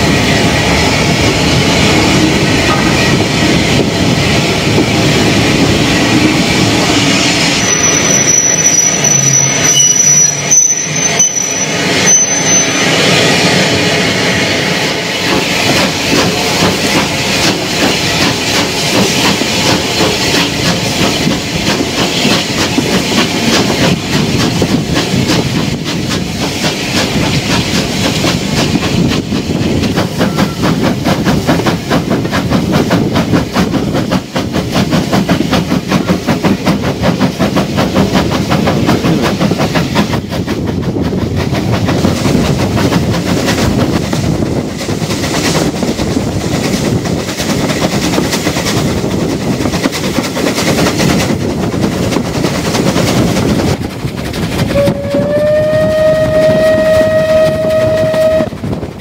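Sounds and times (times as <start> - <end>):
steam locomotive exhaust beats: 0.0 - 59.0
train wheel squeal: 5.8 - 14.0, 14.9 - 31.6, 54.5 - 58.8.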